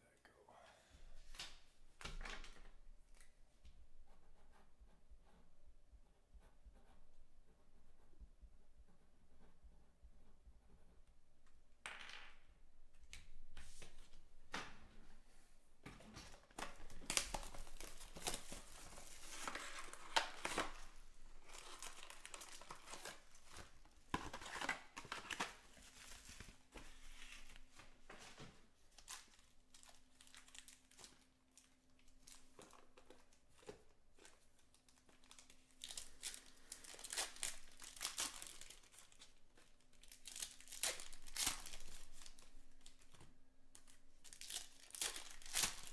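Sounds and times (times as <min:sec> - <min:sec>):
plastic wrappers crinkling and tearing: 0:16.4 - 0:26.6, 0:28.9 - 0:45.9.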